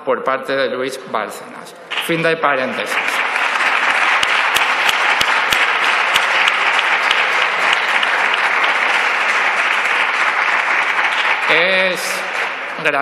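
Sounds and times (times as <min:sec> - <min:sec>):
crowd clapping: 0:01.9 - 0:13.0
sharp single claps: 0:02.8 - 0:13.0.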